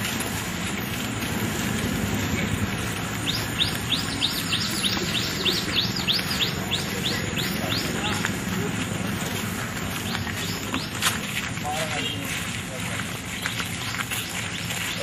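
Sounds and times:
outdoor background noise: 0.0 - 15.0
bird chirping rapidly: 3.2 - 8.2.

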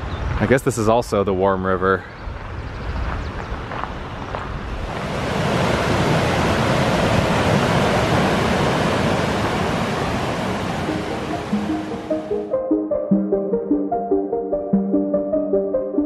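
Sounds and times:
wind rumble on microphone: 2.2 - 10.9
stream cascading over rocks: 4.9 - 12.2.

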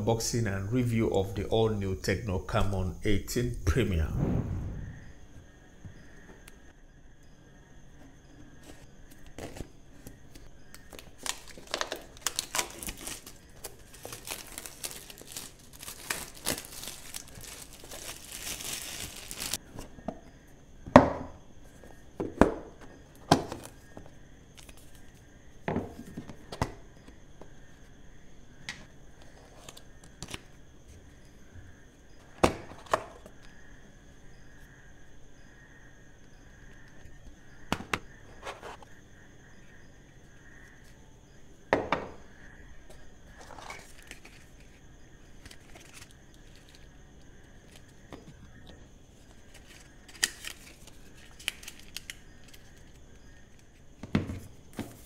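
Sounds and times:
packaging crinkling: 10.9 - 19.6, 45.4 - 46.9, 49.5 - 53.0
packaging slit and torn: 11.2 - 19.6.

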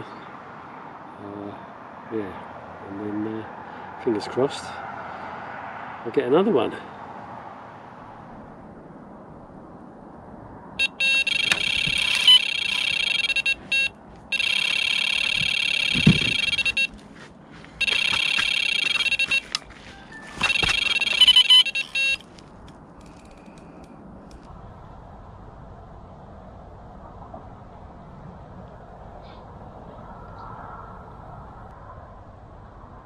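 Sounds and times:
bite alarm rapid high bleeps: 10.8 - 17.0, 17.8 - 22.2.

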